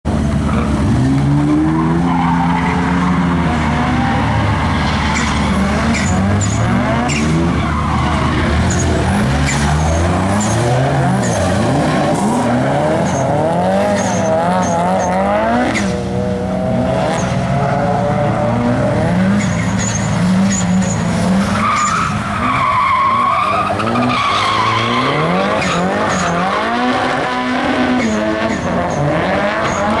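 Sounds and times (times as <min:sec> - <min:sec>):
car engine revving: 0:00.1 - 0:30.0
tyres squealing: 0:01.6 - 0:15.2.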